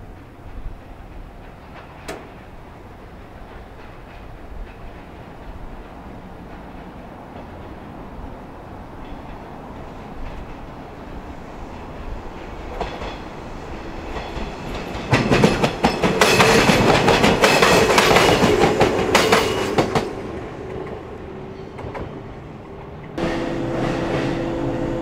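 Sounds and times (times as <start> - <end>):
wheels clattering over rail joints: 0.0 - 13.4
electric train passing: 0.0 - 25.0
train motor hum: 21.8 - 25.0.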